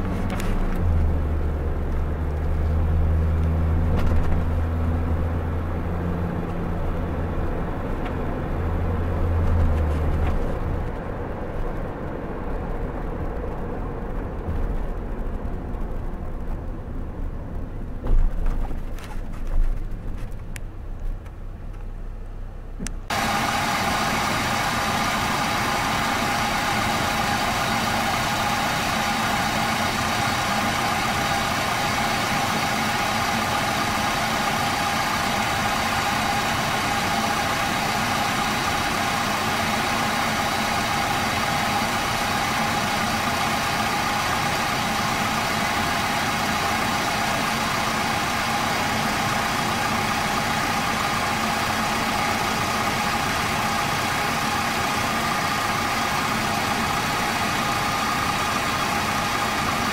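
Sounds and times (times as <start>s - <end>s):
pickup engine idling: 22.2s - 59.9s
thin steady whine: 23.1s - 59.9s.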